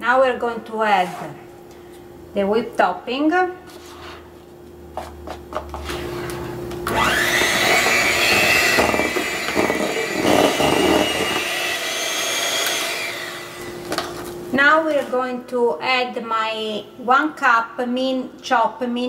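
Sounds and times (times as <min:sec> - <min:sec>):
electric hand mixer running: 0:06.8 - 0:14.1
beaters churning cream cheese: 0:06.9 - 0:13.4.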